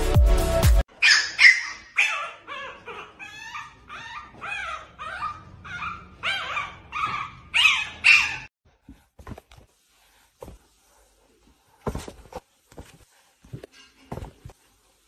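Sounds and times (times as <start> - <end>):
puppy yipping and whimpering: 1.0 - 8.5.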